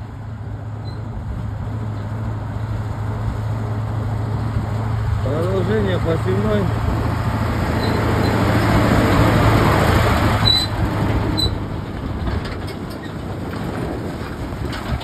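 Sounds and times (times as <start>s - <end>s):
diesel truck engine: 0.0s - 15.0s
tyres on gravel road: 0.0s - 15.0s
trailers rattling: 0.4s - 15.0s
short squeaks: 0.8s - 1.1s, 7.8s - 8.7s, 10.4s - 11.7s.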